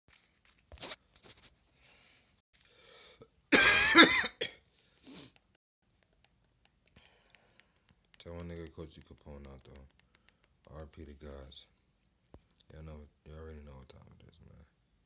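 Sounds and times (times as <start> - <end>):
faint breaths: 1.7 - 3.3, 6.9 - 8.0
person coughing: 3.5 - 4.6.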